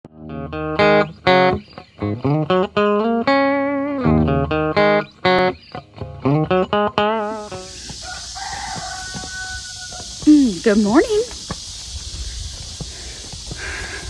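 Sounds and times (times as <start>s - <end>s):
plucked guitar melody: 0.1s - 7.8s.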